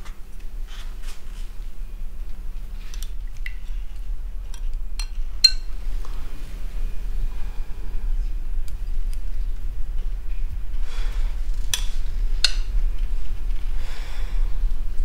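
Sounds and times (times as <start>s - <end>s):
steady low hum: 0.0s - 15.0s
metal spoon clinking ceramic bowl: 5.0s - 5.7s.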